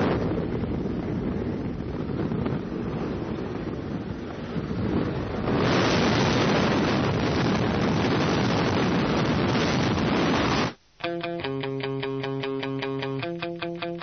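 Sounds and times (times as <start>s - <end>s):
wind rush and aircraft noise: 0.0s - 10.8s
electric guitar music: 11.0s - 14.0s.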